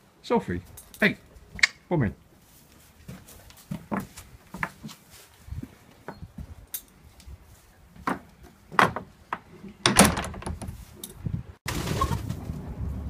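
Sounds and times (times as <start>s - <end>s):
wind noise on microphone: 5.4s - 7.6s, 10.0s - 13.0s
door knocking and rattling: 9.9s - 10.7s.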